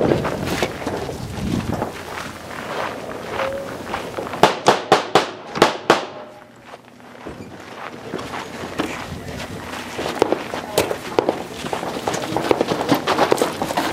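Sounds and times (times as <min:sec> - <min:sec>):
rapid gunshots: 0:04.4 - 0:06.2.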